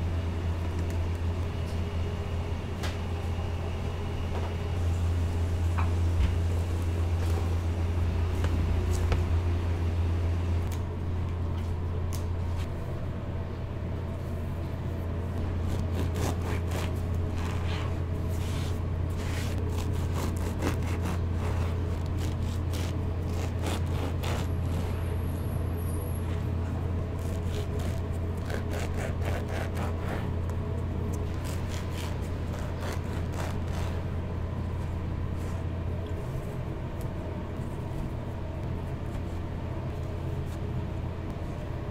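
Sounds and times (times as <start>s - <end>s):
low hum: 0.0s - 41.9s
bread knife sawing crusty loaf: 15.6s - 18.0s, 19.2s - 25.1s, 27.2s - 30.3s, 31.3s - 34.0s.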